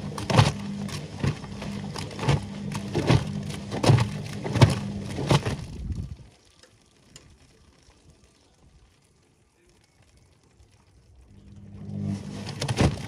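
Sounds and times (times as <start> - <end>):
wet laundry thumping in drum: 0.0 - 5.8, 12.4 - 13.0
washing machine motor hum: 0.0 - 6.2, 11.2 - 13.0
faint ticks and drips: 5.6 - 11.8.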